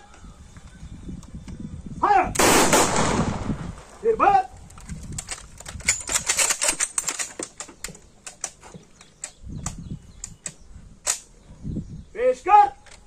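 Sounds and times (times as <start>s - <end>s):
rifle bolts clicking: 4.6s - 11.3s.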